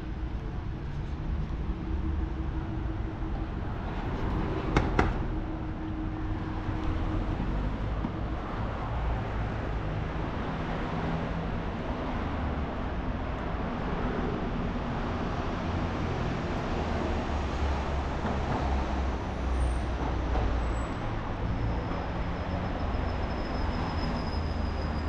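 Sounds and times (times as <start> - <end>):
low engine hum: 0.0 - 20.4
passing vehicles: 0.0 - 25.0.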